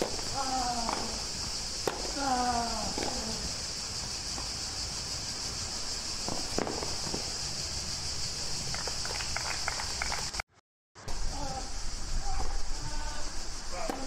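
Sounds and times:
tennis ball struck: 0:00.0 - 0:02.2, 0:02.9 - 0:03.3, 0:06.2 - 0:07.2, 0:13.8 - 0:14.0
steady high hiss: 0:00.0 - 0:10.4, 0:11.0 - 0:14.0
crowd clapping: 0:08.7 - 0:10.4.

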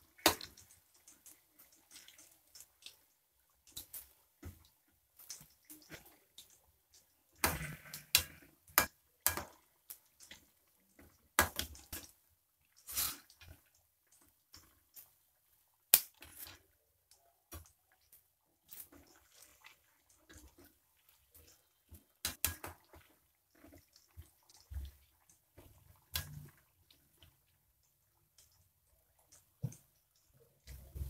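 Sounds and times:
hot oil crackling and spitting: 0:00.0 - 0:31.0.

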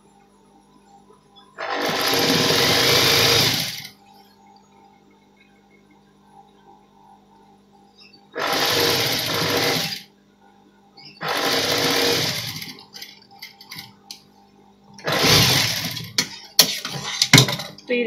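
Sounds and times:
faint hum: 0:00.0 - 0:18.0
sewing machine stitching: 0:01.6 - 0:03.9, 0:08.4 - 0:10.0, 0:11.2 - 0:13.8, 0:15.0 - 0:16.2.

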